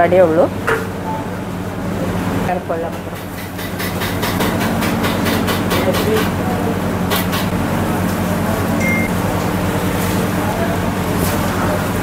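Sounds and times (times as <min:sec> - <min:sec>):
steady low hum: 0:04.2 - 0:12.0.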